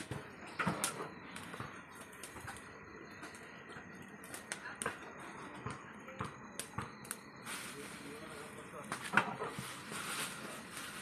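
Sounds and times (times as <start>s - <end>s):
wood fire crackling: 0.0s - 11.0s
faint steady hiss: 6.6s - 11.0s.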